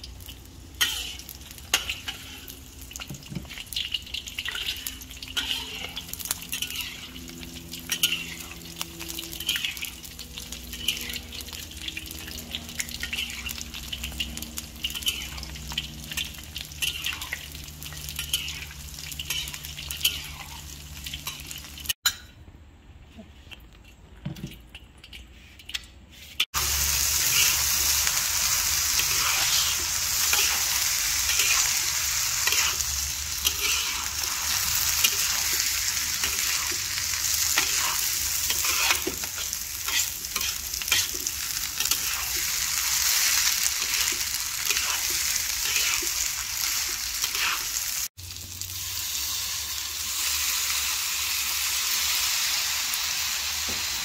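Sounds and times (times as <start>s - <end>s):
rice sizzling in hot oil: 0.0s - 22.0s, 26.4s - 54.0s
spatula scraping wok: 0.7s - 22.0s, 25.1s - 48.1s.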